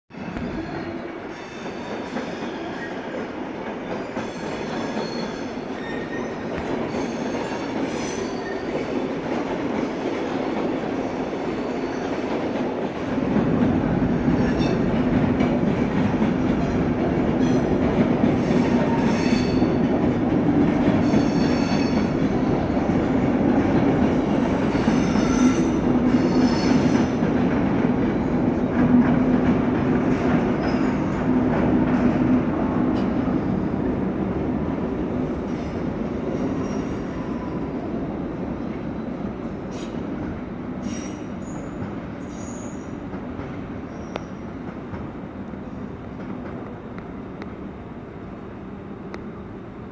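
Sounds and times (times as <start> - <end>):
train wheels rumbling: 0.1 - 49.8
train wheels squealing: 0.2 - 9.0, 11.0 - 12.3, 14.3 - 14.9, 18.4 - 19.8, 21.0 - 22.9, 24.6 - 27.2, 30.5 - 31.2, 35.5 - 40.1, 40.8 - 44.7.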